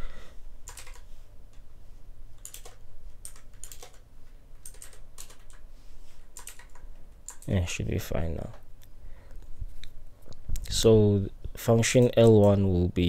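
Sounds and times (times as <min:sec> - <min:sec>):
computer keyboard keystrokes: 0:00.6 - 0:01.6, 0:02.4 - 0:05.6, 0:06.4 - 0:07.6, 0:12.0 - 0:12.6.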